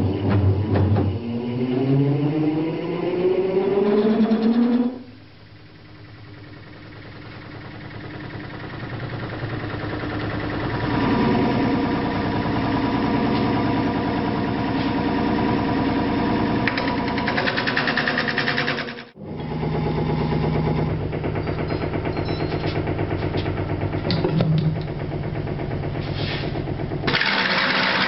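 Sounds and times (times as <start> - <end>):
wood lathe rumbling: 3.8 - 28.0
turning tool cutting wood: 16.6 - 19.2, 27.0 - 28.0.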